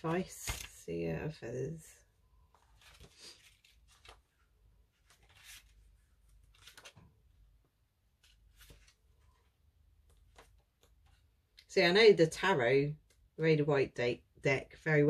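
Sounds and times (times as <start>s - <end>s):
faint paper rustles: 0.0s - 0.9s, 2.4s - 11.3s.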